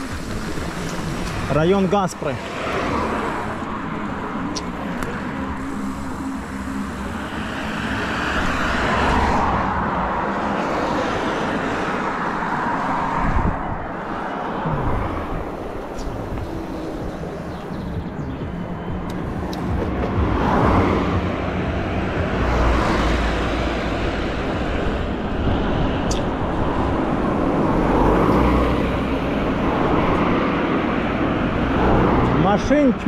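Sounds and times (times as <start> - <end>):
wind rushing over microphone: 0.0 - 32.9
bike tyres on asphalt: 0.0 - 33.0
passing car traffic: 0.0 - 33.0.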